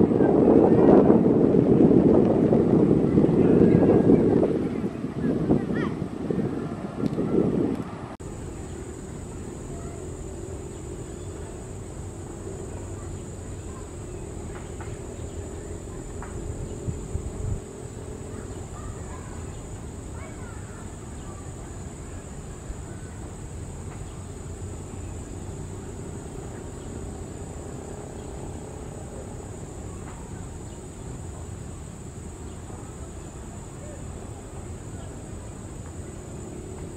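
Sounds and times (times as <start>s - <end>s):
distant jet engines rumbling: 0.0s - 36.9s
insect chirring: 8.2s - 34.0s.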